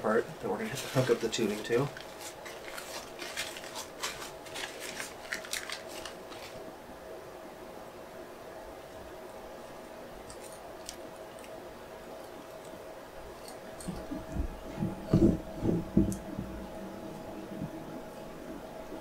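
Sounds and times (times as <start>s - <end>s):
faint steady hum: 0.0s - 19.0s
dull thumps and rubbing: 13.9s - 16.8s.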